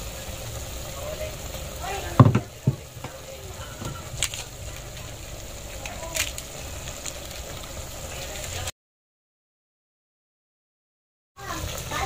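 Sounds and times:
chicken sizzling in a pot: 0.0 - 8.7, 11.4 - 12.0.

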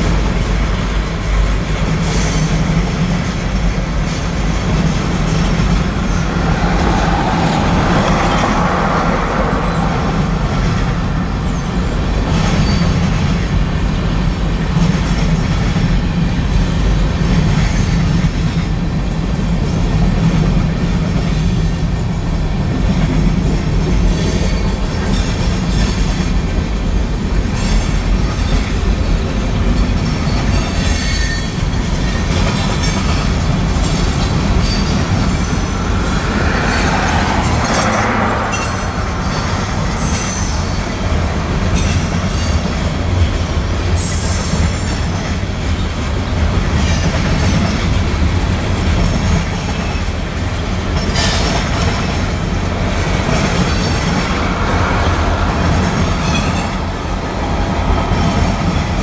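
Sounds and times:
clickety-clack over rail joints: 0.0 - 59.0
train wheels rumbling on rails: 0.0 - 59.0
faint high wheel squeal: 12.5 - 13.1.

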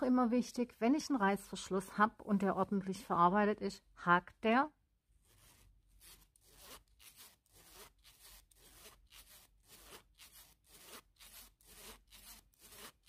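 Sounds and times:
zip pulled back and forth: 5.3 - 13.0.

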